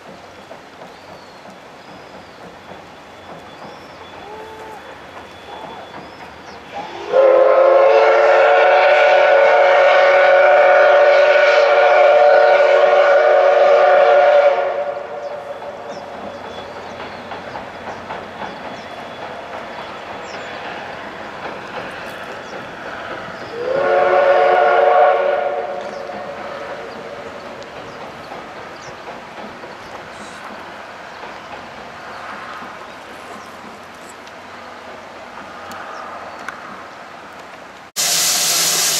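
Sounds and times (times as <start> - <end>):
train running over steel bridge: 0.0 - 38.9
steam locomotive whistle blasts: 6.7 - 15.8, 23.5 - 26.8, 38.0 - 38.9.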